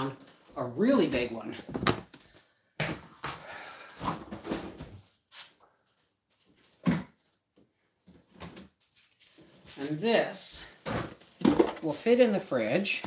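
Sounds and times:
plastic tub rattling and scraping: 10.8 - 12.2.

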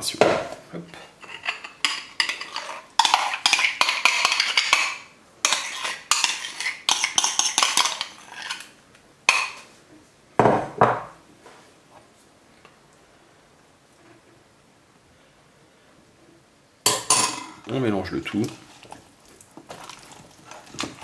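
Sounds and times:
metal spoon scraping a bowl: 1.2 - 8.7.

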